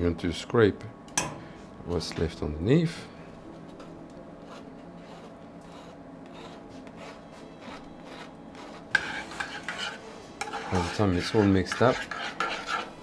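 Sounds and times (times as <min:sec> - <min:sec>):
steady low hum: 0:00.0 - 0:13.0
metal spoon scraping mesh sieve: 0:07.6 - 0:13.0.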